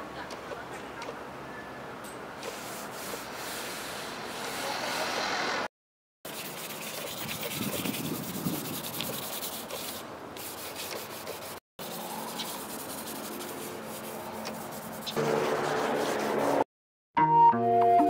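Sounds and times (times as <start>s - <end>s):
charcoal scraping on paper: 2.4s - 4.5s, 6.3s - 16.6s.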